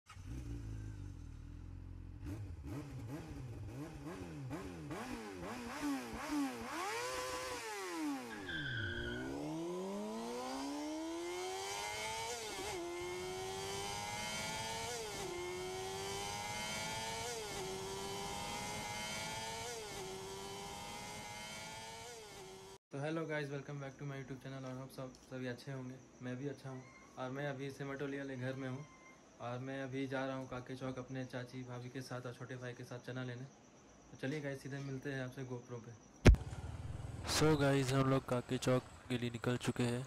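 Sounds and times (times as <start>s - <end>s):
engine revving: 0.0s - 22.8s, 36.3s - 39.8s.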